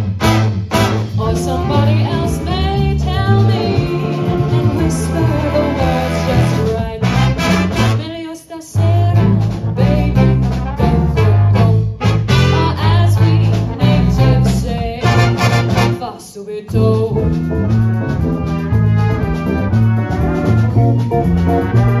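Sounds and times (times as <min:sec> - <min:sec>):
big band swing jazz: 0:00.0 - 0:22.0
woman singing: 0:01.2 - 0:17.4.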